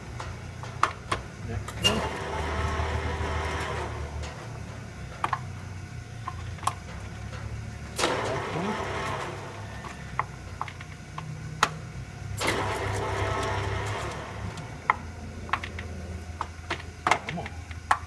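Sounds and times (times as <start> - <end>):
lathe humming: 0.0 - 18.0
lever clatter: 0.0 - 18.0.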